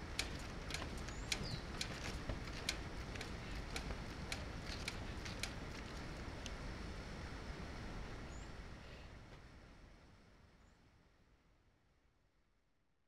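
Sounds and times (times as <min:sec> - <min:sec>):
wind rumble on microphone: 0:00.0 - 0:10.0.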